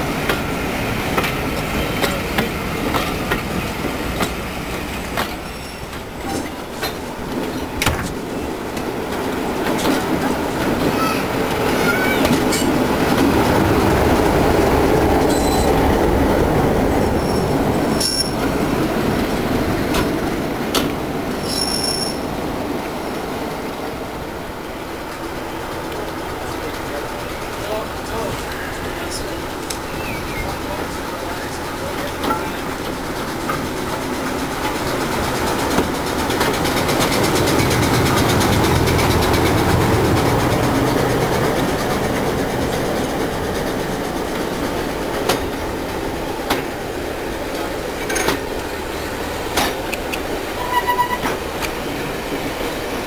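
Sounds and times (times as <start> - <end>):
train rumbling: 0.0 - 53.0
high-pitched wheel squeals: 15.3 - 15.8, 21.4 - 22.2, 50.6 - 51.4
wheels clicking and clanking: 25.2 - 52.5.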